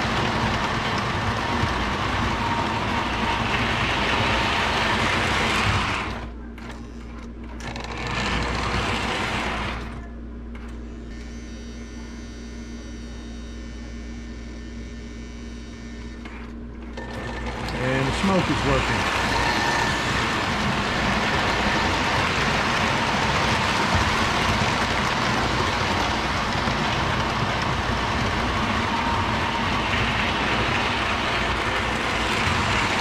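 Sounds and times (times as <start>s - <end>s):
model train rumbling: 0.0s - 6.3s, 7.7s - 10.0s, 17.0s - 33.0s
motor whine: 0.0s - 33.0s.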